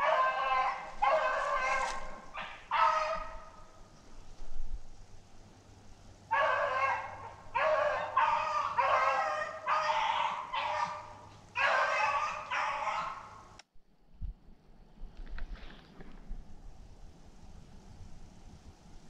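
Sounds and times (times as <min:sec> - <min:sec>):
dogs baying: 0:00.0 - 0:03.7, 0:06.3 - 0:13.5.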